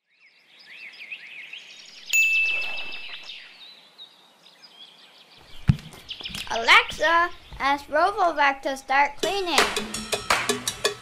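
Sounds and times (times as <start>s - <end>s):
small birds chirping: 0.0s - 9.1s
bright ringing ding: 2.1s - 3.2s.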